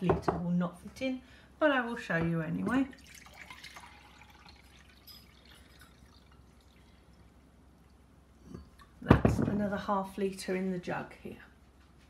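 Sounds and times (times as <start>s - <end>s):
water dripping into a jug: 2.6s - 9.1s.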